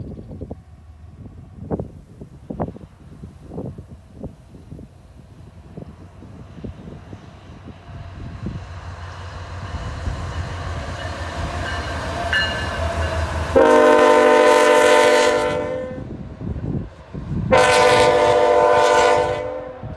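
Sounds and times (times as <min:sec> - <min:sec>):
diesel locomotive engine rumble: 0:00.0 - 0:19.9
locomotive air horn blasts: 0:12.3 - 0:16.2, 0:17.4 - 0:19.9.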